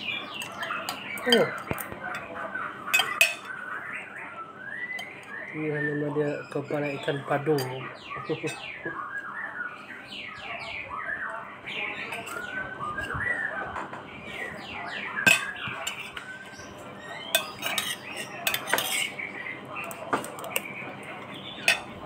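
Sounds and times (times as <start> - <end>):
metal spoon scraping plate: 15.3 - 16.3, 17.3 - 19.2.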